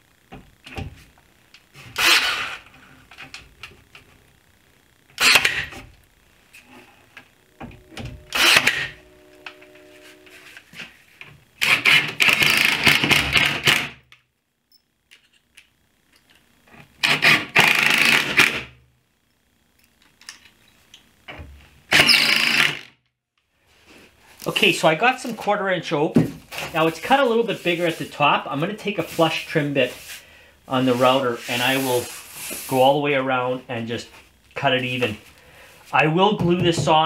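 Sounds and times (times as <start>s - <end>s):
cordless drill driving screws: 2.0s - 2.6s, 21.9s - 22.9s.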